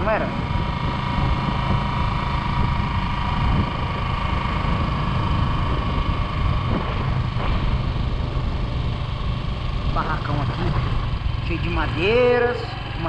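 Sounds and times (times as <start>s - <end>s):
tyre and wind noise: 0.0s - 10.0s
motorcycle engine running: 0.0s - 13.0s
steady whine: 0.0s - 13.0s.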